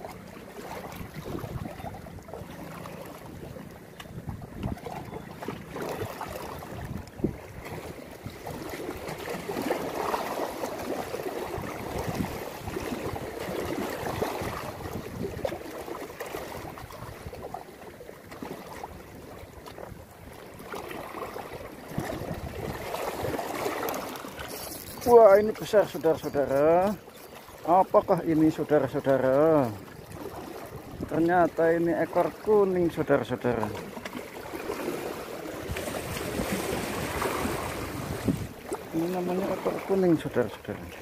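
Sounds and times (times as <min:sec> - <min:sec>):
seawater splashing against rocks: 0:00.0 - 0:41.0
wind buffeting microphone: 0:00.9 - 0:02.2, 0:04.1 - 0:08.7, 0:11.5 - 0:15.6, 0:35.6 - 0:38.6.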